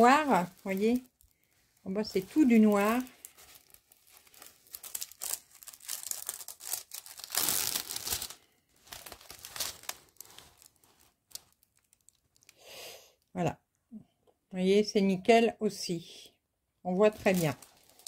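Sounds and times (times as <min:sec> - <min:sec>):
plastic film crinkling: 0:00.0 - 0:12.6, 0:17.0 - 0:18.0.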